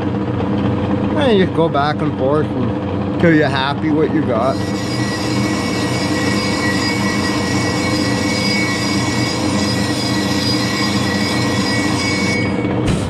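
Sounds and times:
metal lathe whining: 0.0s - 12.8s
form tool cutting metal: 3.2s - 13.0s.

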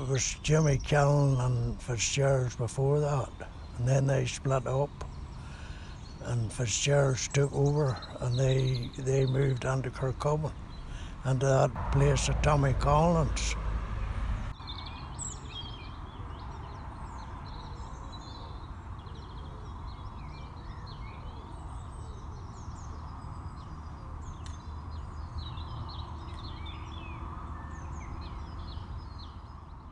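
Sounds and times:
low background rumble: 0.0s - 14.6s
small birds chirping: 0.0s - 29.9s.

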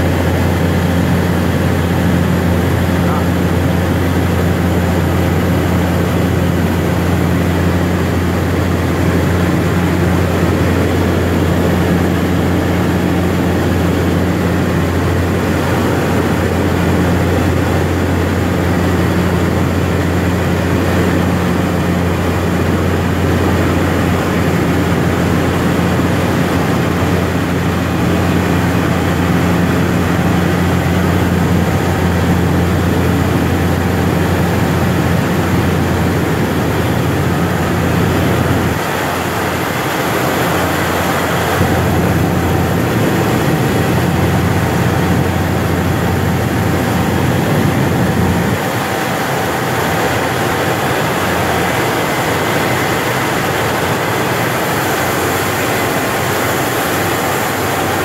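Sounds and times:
turboprop engine drone: 0.0s - 58.0s.

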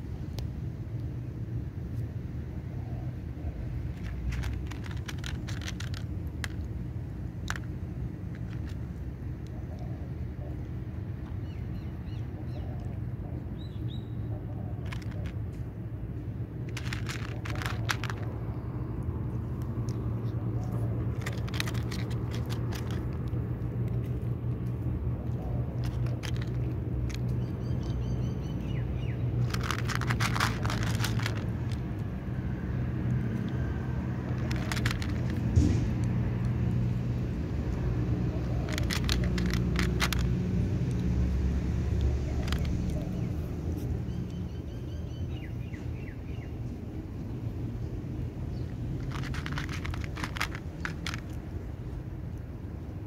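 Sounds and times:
steady low rumble: 0.0s - 44.7s
cat crunching dry kibble: 3.7s - 9.8s, 14.8s - 27.9s, 29.2s - 43.9s, 48.1s - 52.8s.

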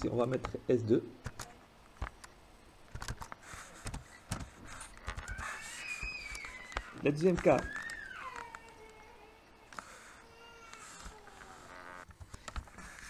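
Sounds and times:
mouse and keyboard clicks: 1.2s - 2.3s, 2.9s - 5.6s.

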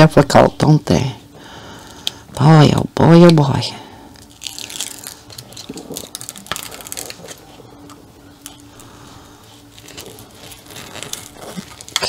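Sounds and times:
plastic sheet crinkling: 4.1s - 12.0s.

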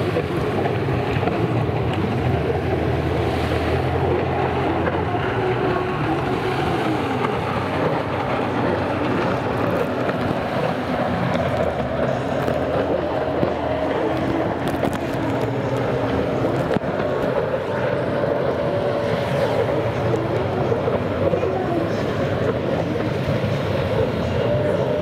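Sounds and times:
jet ski engines whining: 0.0s - 25.0s
wind noise on microphone: 0.0s - 25.0s.

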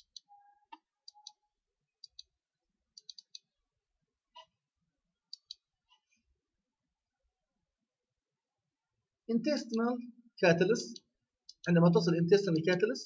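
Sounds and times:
faint computer mouse clicks: 0.0s - 1.4s.

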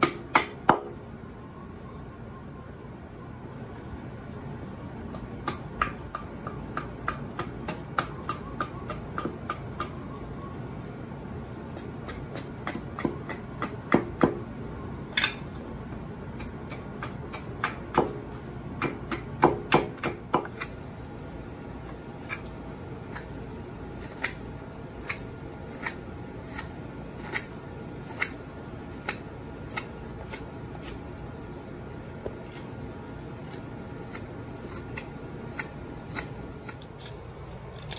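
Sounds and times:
axe chopping wood: 16.7s - 18.2s, 18.8s - 20.7s.

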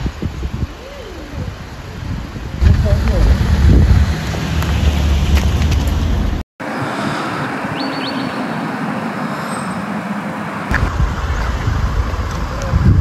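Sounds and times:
distant road traffic hiss: 6.6s - 12.7s.

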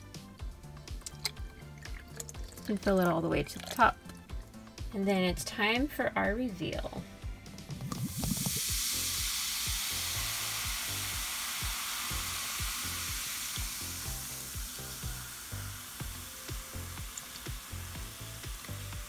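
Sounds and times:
background music with beat: 0.0s - 19.0s
water pouring: 1.0s - 4.2s, 7.6s - 19.0s
fizzing powder hiss: 7.6s - 19.0s.

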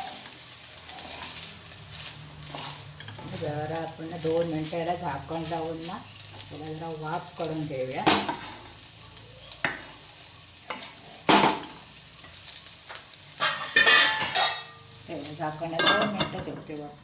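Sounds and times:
wooden spatula scraping rice: 0.0s - 6.6s.

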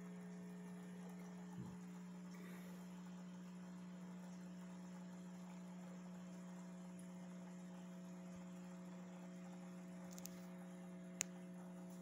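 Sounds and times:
faint electrical hum: 0.0s - 12.0s.

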